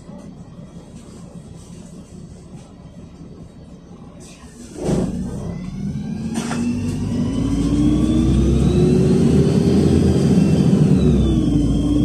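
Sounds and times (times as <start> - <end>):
bus engine humming and whining: 0.0 - 12.0.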